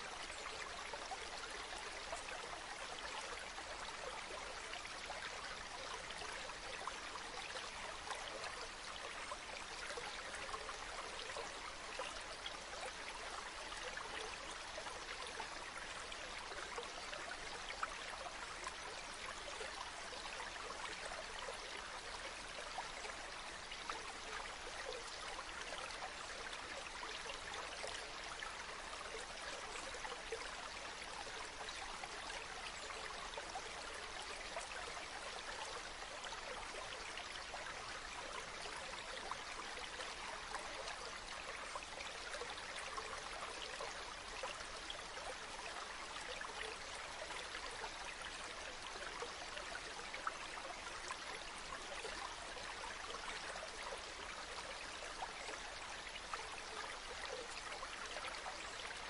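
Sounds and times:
stream flowing: 0.0s - 59.0s.

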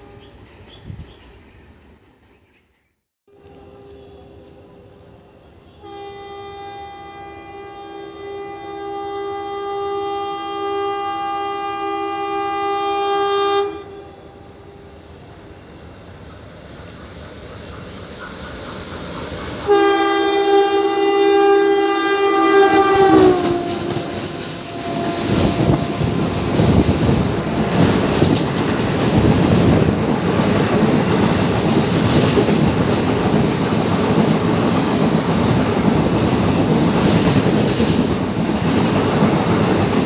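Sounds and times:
train rumble: 3.3s - 40.0s
two-note locomotive horn: 5.7s - 14.9s, 19.6s - 27.6s.

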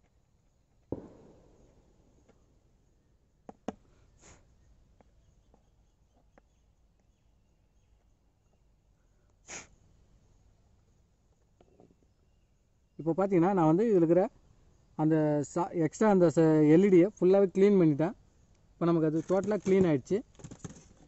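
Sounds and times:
person sniffing: 4.1s - 4.5s, 9.4s - 9.8s.

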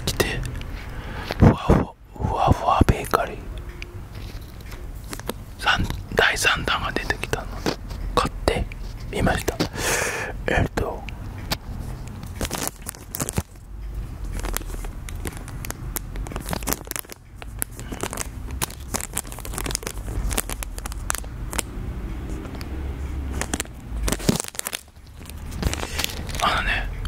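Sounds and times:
plastic pouch crackling: 12.3s - 13.6s, 14.2s - 21.7s, 23.3s - 26.6s.

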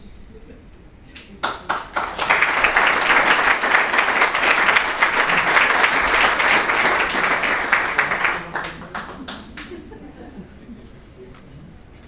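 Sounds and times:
audience applauding: 1.4s - 10.0s.

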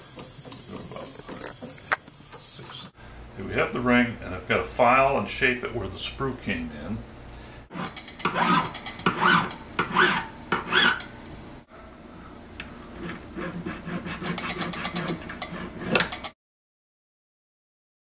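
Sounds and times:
needle file rasping on metal ring: 7.7s - 11.1s, 13.4s - 16.3s.

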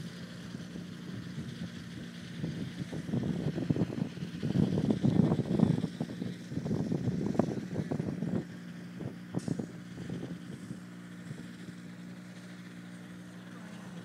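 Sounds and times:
distant light aircraft engine drone: 0.0s - 14.0s
wind buffeting microphone: 1.0s - 11.6s.

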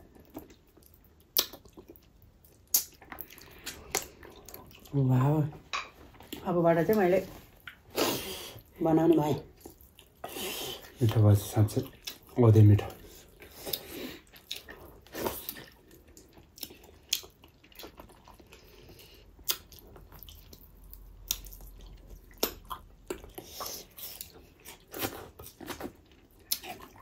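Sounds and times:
wet chewing smacks: 0.2s - 5.0s, 13.0s - 27.0s.

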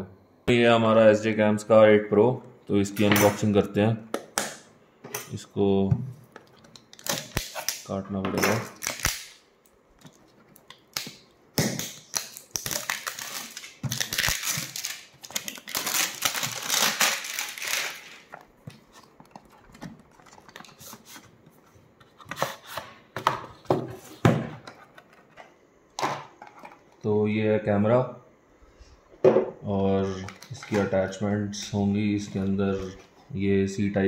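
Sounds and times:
packaging tearing and crinkling: 6.9s - 7.9s, 8.7s - 9.4s, 10.9s - 18.3s.

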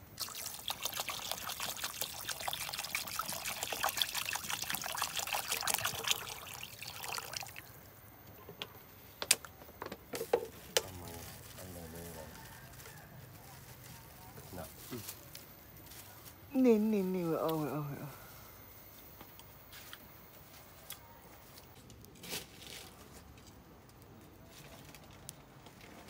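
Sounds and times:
water trickling and splashing: 0.1s - 7.8s.

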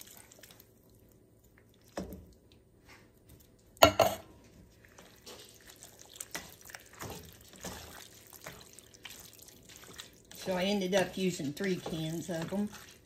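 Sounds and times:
wooden spatula scraping sauce: 4.4s - 13.0s.

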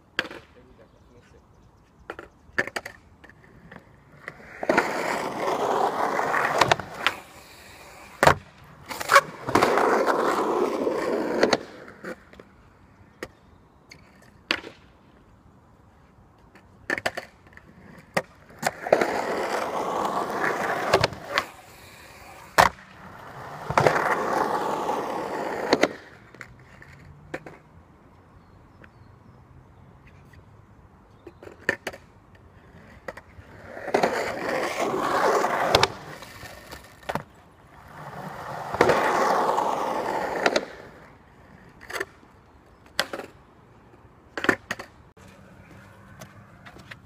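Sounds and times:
skateboard wheels rolling on concrete: 0.0s - 47.0s
skateboard tail clacks: 16.4s - 27.7s.

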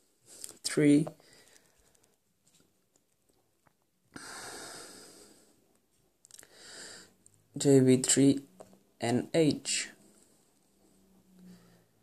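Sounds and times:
person breathing out: 4.2s - 5.6s, 6.4s - 7.2s.

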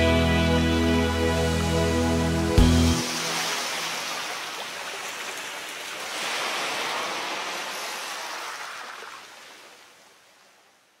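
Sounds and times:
sea waves washing onto beach: 2.9s - 11.0s.

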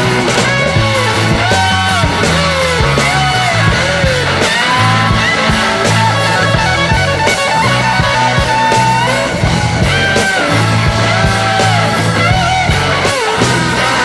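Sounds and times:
rock music with sliding guitar: 0.0s - 14.0s.

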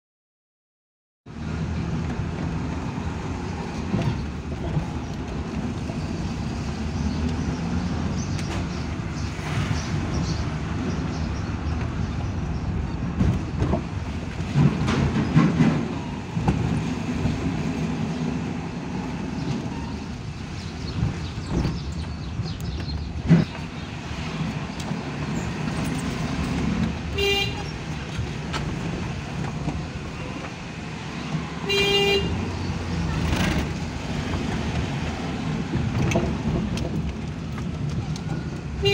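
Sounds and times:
road noise: 1.2s - 38.9s
car horn toot: 27.2s - 27.7s, 31.7s - 32.4s.

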